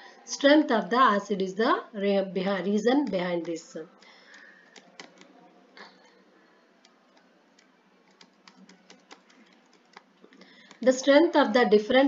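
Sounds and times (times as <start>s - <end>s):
computer keyboard clicks: 3.0s - 5.4s, 6.8s - 10.9s.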